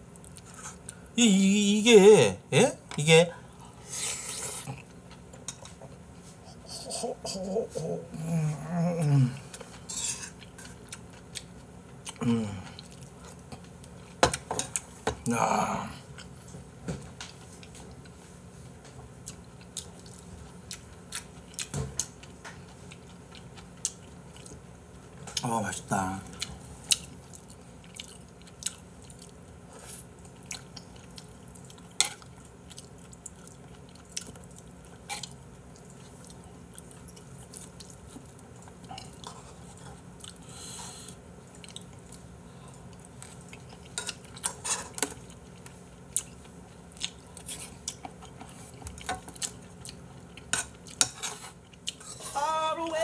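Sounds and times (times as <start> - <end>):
person chewing: 0.0 - 1.2, 9.3 - 15.0, 19.2 - 24.6, 26.4 - 52.4.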